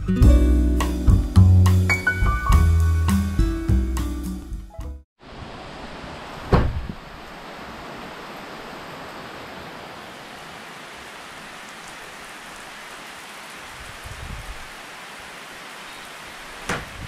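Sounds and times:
heavy rain falling: 0:05.2 - 0:17.0
short loud thump: 0:06.5 - 0:06.9.

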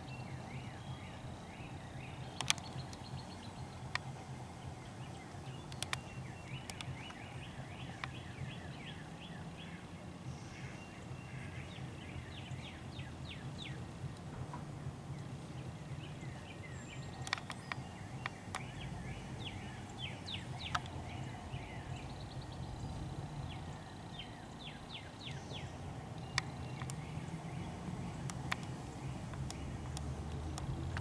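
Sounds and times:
low background rumble: 0:00.0 - 0:31.0
small birds chirping: 0:00.0 - 0:31.0
sharp ticks: 0:02.2 - 0:04.3, 0:05.3 - 0:07.2, 0:07.8 - 0:08.2, 0:17.0 - 0:21.4, 0:26.2 - 0:31.0.

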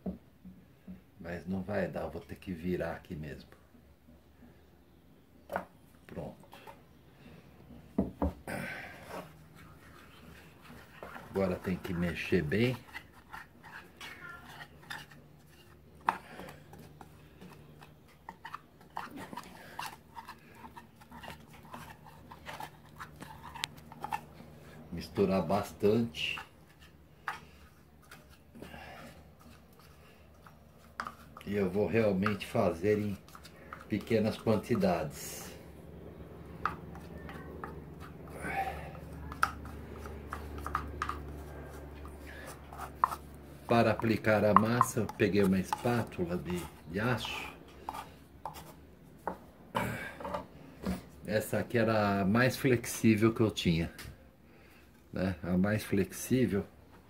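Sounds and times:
low steady hum: 0:00.0 - 0:57.0
stick scraping paste in a cup: 0:09.1 - 0:48.8.

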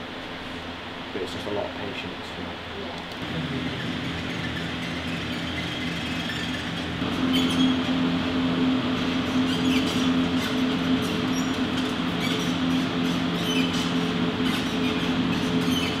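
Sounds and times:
mechanical hum and rumble: 0:00.0 - 0:16.0
faint high squeaks and clicks: 0:03.1 - 0:07.9, 0:09.2 - 0:16.0.

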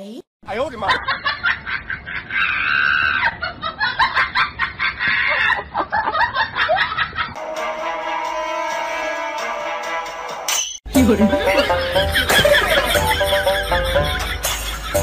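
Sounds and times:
high-pitched laughter bursts: 0:01.5 - 0:05.9
background music: 0:07.4 - 0:15.0.

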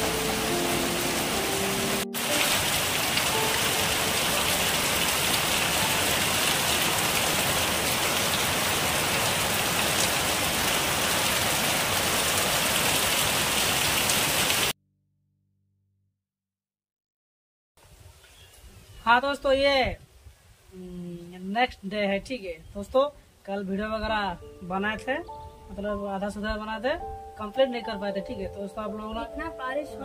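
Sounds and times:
heavy rain pouring: 0:00.0 - 0:14.8.

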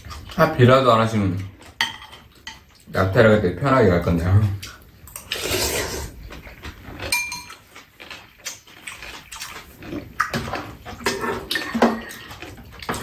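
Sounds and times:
chewing and lip smacks: 0:04.4 - 0:05.4, 0:06.1 - 0:13.0
soup slurping: 0:05.3 - 0:06.2
utensils clicking on bowls: 0:07.0 - 0:09.6
metal on metal ring: 0:07.1 - 0:07.6.

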